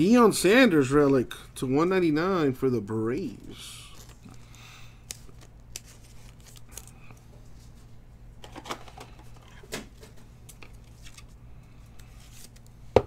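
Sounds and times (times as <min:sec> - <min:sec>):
low steady hum: 0:00.0 - 0:13.0
plastic card sleeves rustling: 0:03.7 - 0:07.8, 0:10.4 - 0:12.8.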